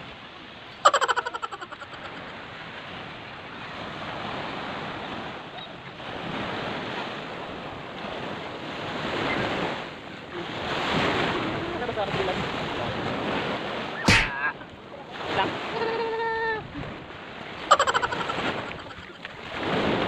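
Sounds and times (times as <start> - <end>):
waves breaking on sandy beach: 0.0 - 20.0
wind buffeting microphone: 2.3 - 17.7.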